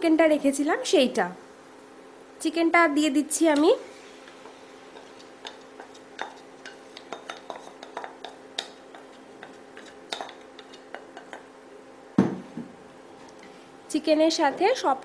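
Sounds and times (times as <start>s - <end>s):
wooden spatula scraping plate: 4.4s - 11.4s.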